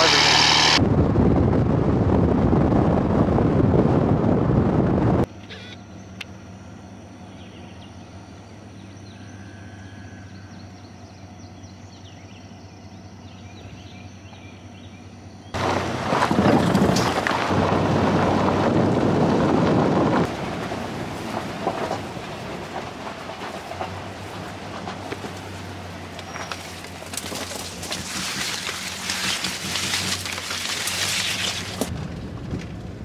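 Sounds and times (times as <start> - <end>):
low hum: 0.0 - 33.0
vehicle rumbling and rattling: 0.0 - 33.0
faint bird chirps: 5.5 - 15.5.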